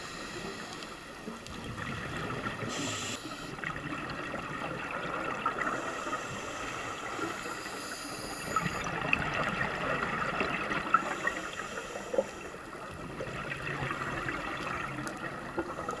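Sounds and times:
muffled underwater hiss: 0:00.0 - 0:16.0
small clicks and crackles: 0:00.3 - 0:04.6, 0:08.5 - 0:16.0.

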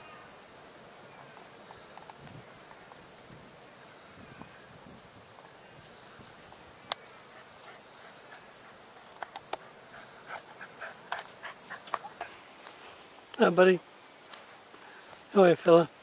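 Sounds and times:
high-pitched insect chirring: 0:00.0 - 0:12.3.

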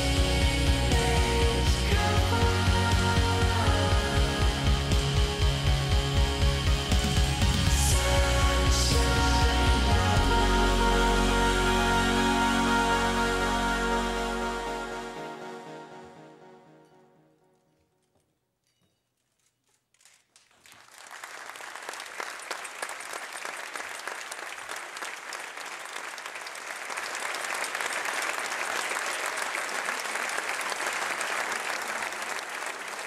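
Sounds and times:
audience applauding: 0:20.4 - 0:33.0.

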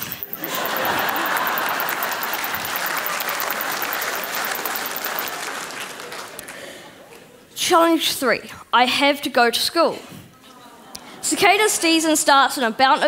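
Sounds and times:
audience applauding: 0:00.4 - 0:07.0.

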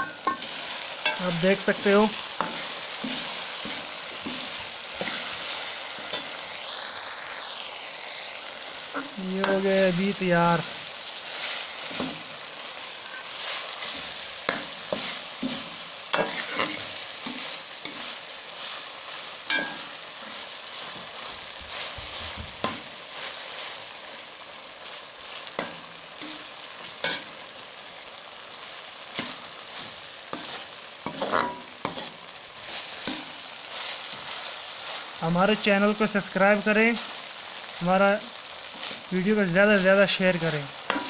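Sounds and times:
metal spoon scraping a pan: 0:00.0 - 0:06.4, 0:11.2 - 0:23.8, 0:25.3 - 0:27.4, 0:29.1 - 0:35.2, 0:39.7 - 0:41.0
food sizzling in oil: 0:00.0 - 0:41.0.

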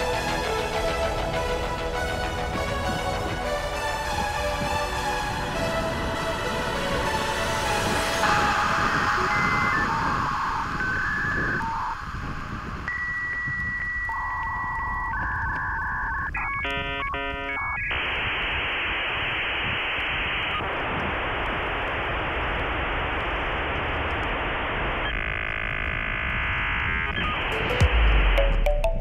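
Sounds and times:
dial-up modem tones: 0:07.8 - 0:21.5, 0:24.0 - 0:29.0
dialing beeps: 0:08.2 - 0:18.1.

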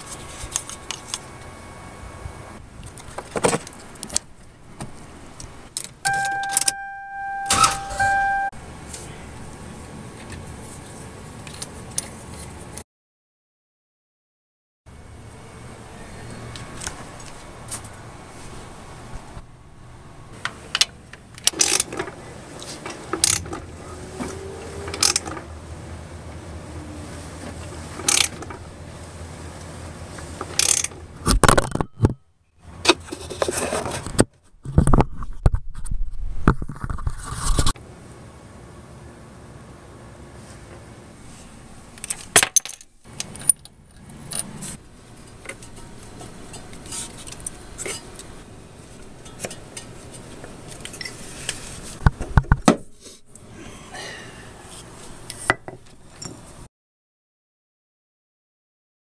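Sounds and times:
metal scraping: 0:45.5 - 0:48.2.

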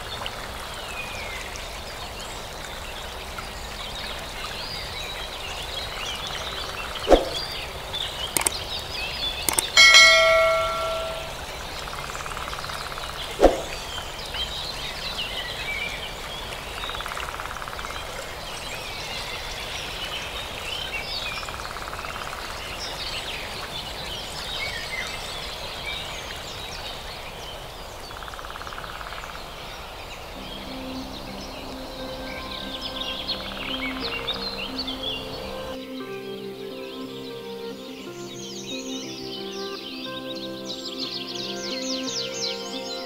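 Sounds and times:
birds chirping: 0:02.2 - 0:11.6, 0:28.8 - 0:36.0
bell-like ding: 0:09.5 - 0:11.5
faint trill: 0:09.5 - 0:11.5
soft music: 0:09.5 - 0:11.7, 0:30.4 - 0:43.0.

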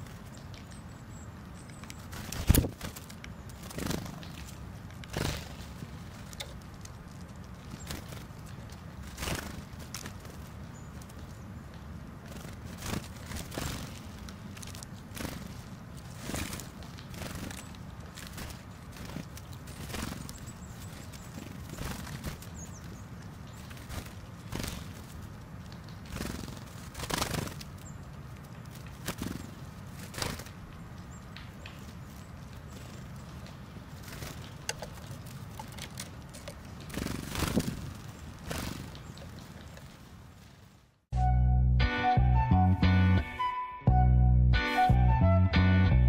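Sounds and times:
birds pecking and scrabbling in seeds: 0:00.0 - 0:41.0.

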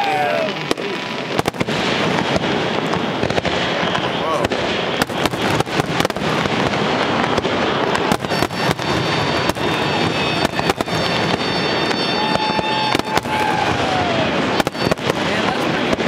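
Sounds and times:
fireworks bursting with bangs: 0:00.0 - 0:16.0
fireworks crackling: 0:00.0 - 0:16.0
fireworks whistling: 0:00.0 - 0:16.0.

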